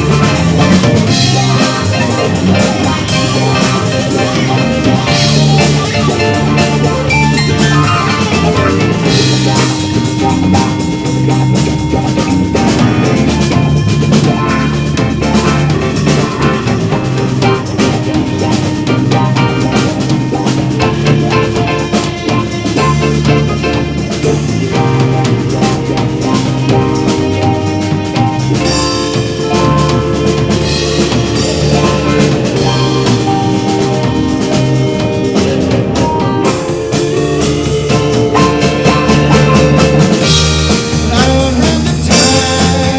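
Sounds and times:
rock band playing loudly: 0.0s - 42.9s.

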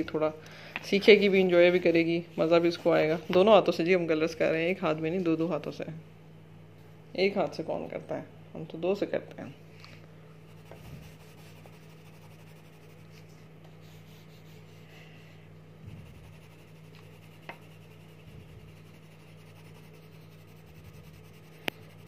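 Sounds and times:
steady low hum: 0.0s - 22.0s
coloured pencils scratching on paper: 10.5s - 14.9s, 15.9s - 22.0s.

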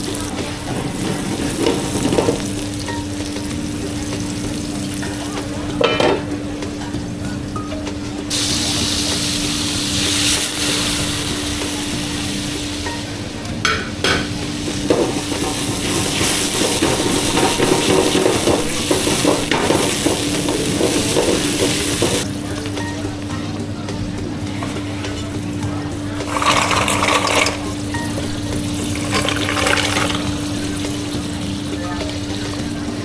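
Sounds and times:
pans and utensils clattering: 0.0s - 23.1s, 24.0s - 33.0s
hiss: 8.3s - 12.8s.

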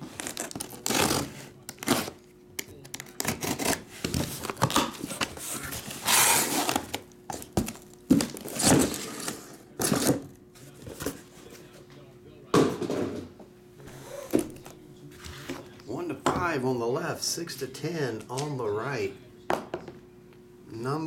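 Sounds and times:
cardboard box rustling and scraping: 3.9s - 10.1s
small boxes set down: 4.1s - 11.2s.

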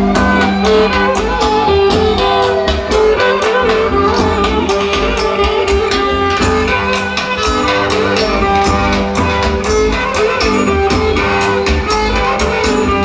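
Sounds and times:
steady drum beat: 0.0s - 13.0s
string instrument melody: 0.0s - 13.0s.

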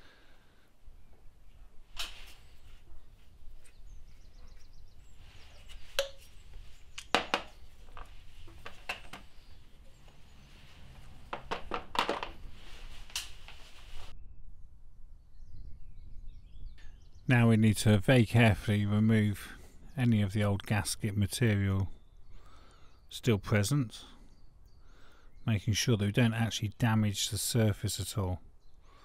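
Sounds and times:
plastic parts clicking and knocking: 7.0s - 9.3s, 11.3s - 12.4s.

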